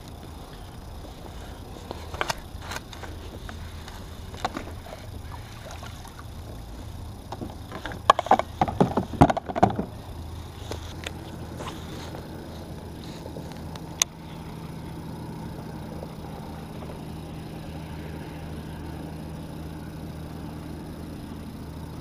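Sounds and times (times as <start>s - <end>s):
steady low rumble: 0.0s - 22.0s
gear knocking on plastic kayak: 7.3s - 10.0s
rapid knocking and rattling: 7.3s - 10.0s.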